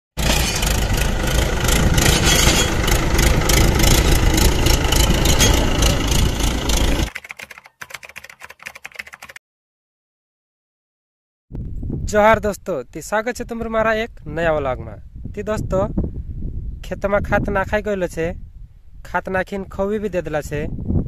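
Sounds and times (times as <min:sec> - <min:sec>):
tractor engine running: 0:00.2 - 0:08.6.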